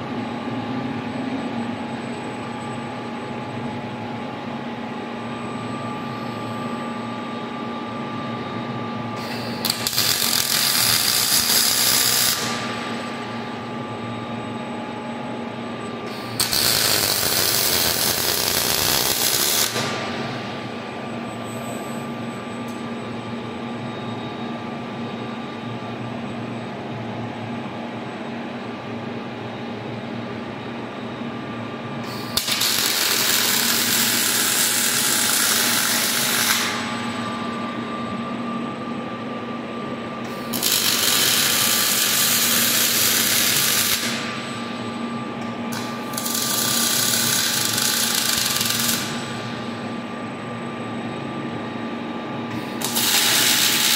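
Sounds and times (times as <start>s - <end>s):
steady machine hum: 0.0s - 53.9s
welding arc crackling and hissing: 9.2s - 13.0s, 16.1s - 20.2s, 32.1s - 37.0s, 40.4s - 44.4s, 45.7s - 49.5s, 52.7s - 53.9s.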